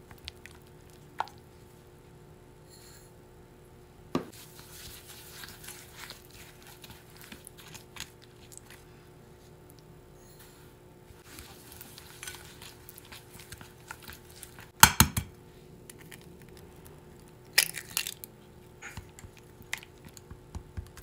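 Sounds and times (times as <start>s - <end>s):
spatula stirring wet mix in bowl: 0.0s - 1.9s, 4.3s - 10.0s, 11.1s - 14.8s, 18.4s - 21.0s
clicks and scrapes against bowl: 11.4s - 14.2s.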